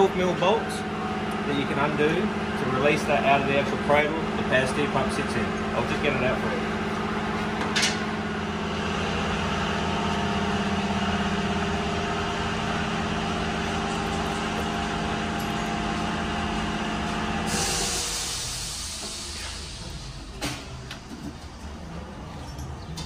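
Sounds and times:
steady machine hum: 0:00.0 - 0:23.0
loud hiss: 0:17.4 - 0:20.6.

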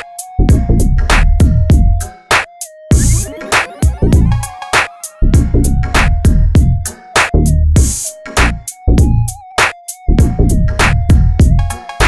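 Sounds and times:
drum machine kicks: 0:00.5 - 0:08.1, 0:09.0 - 0:09.2, 0:10.2 - 0:11.8
thin synth melody: 0:01.6 - 0:07.2.

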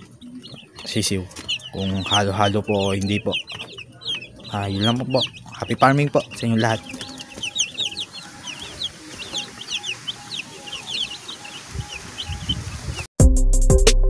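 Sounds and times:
chicks peeping: 0:00.0 - 0:13.1
music with a beat: 0:13.2 - 0:14.0.

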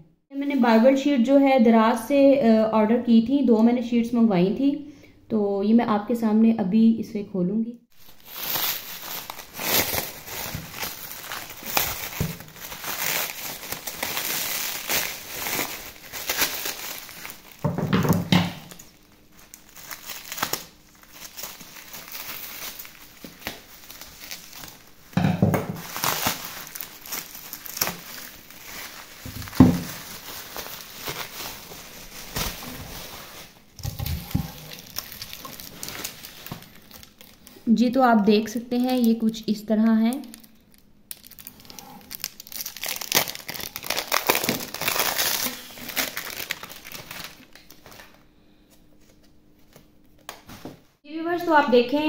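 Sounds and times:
plastic wrapping crinkling and tearing: 0:07.9 - 0:48.3.

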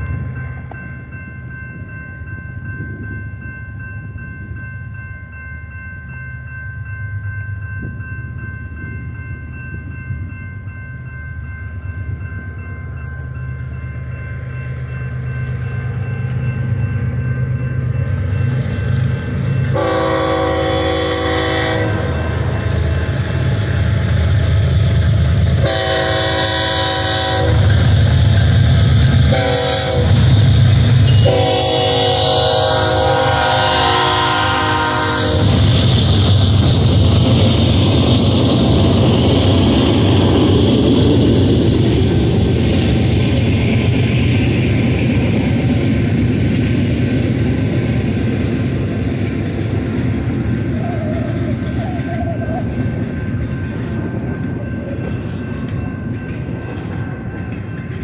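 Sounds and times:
crossing bell ringing: 0:00.0 - 0:58.0
diesel locomotive engine rumble: 0:00.0 - 0:58.0
locomotive horn blasts: 0:19.7 - 0:22.5, 0:25.6 - 0:27.8, 0:29.3 - 0:30.4, 0:31.0 - 0:35.6.

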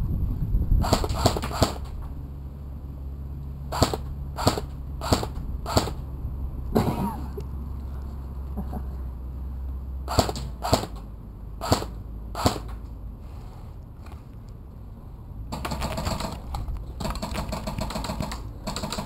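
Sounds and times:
airsoft gun single shots: 0:00.8 - 0:01.9, 0:03.7 - 0:06.0, 0:10.1 - 0:11.0, 0:11.6 - 0:12.7
airsoft gun full-auto rattle: 0:00.8 - 0:02.0, 0:03.7 - 0:06.0, 0:10.1 - 0:12.8, 0:15.5 - 0:19.0.

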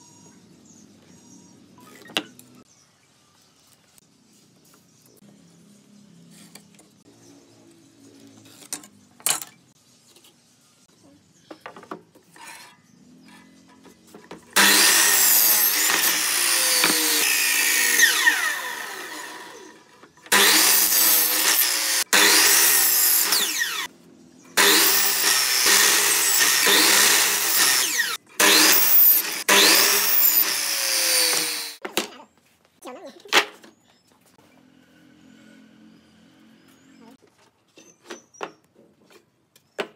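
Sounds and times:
miter saw cutting wood: 0:14.5 - 0:23.9, 0:24.6 - 0:31.8.

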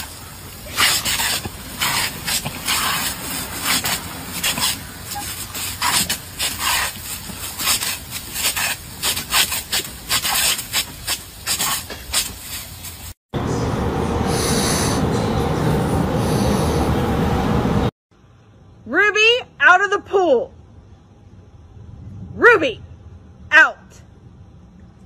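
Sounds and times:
lawn sprinkler hissing spurts: 0:00.0 - 0:13.2.

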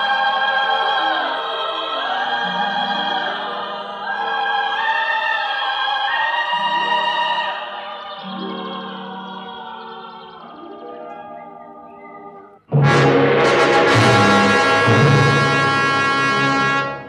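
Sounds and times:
choir singing: 0:00.0 - 0:17.0
wordless operatic singing: 0:00.0 - 0:17.0
orchestra playing: 0:12.7 - 0:17.0.

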